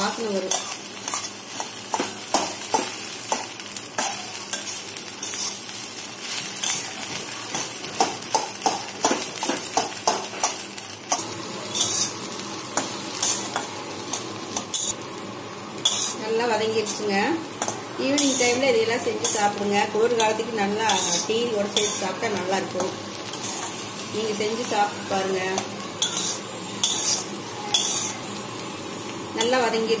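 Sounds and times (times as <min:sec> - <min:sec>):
food sizzling in oil: 0:00.0 - 0:30.0
metal spatula scraping a pan: 0:11.7 - 0:12.2, 0:15.8 - 0:16.2, 0:17.6 - 0:18.6, 0:20.2 - 0:23.8, 0:26.0 - 0:28.2.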